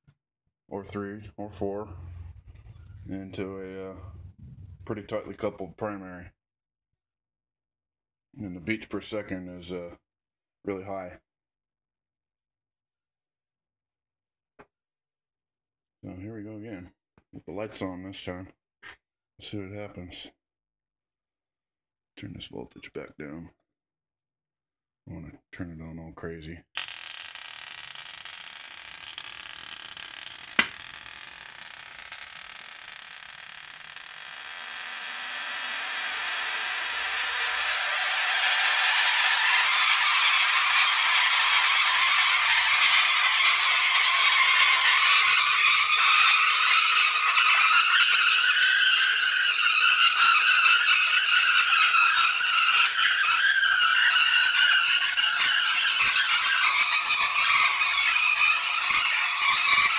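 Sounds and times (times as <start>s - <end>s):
sharp click: 26.8s - 34.4s
tesla coil sparks crackling: 26.8s - 59.9s.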